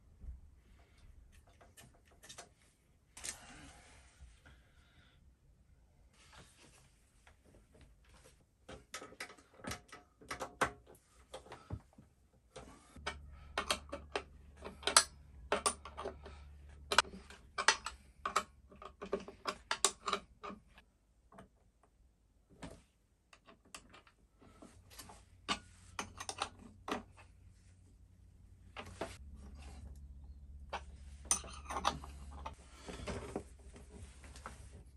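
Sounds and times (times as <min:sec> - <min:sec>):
clicks and clatter of battery cables: 0:08.7 - 0:11.8, 0:12.6 - 0:21.6.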